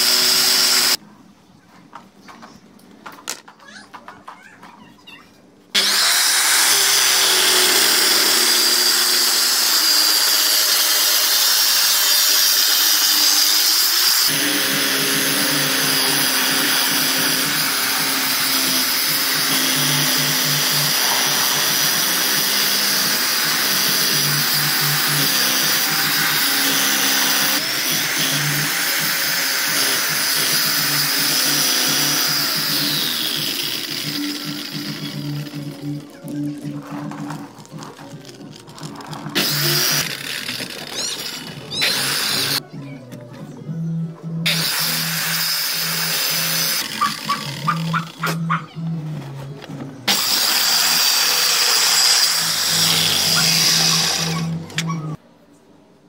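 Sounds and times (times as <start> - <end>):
circular saw cutting board: 0.0 - 1.0, 5.8 - 36.0, 38.9 - 42.6, 50.1 - 55.2.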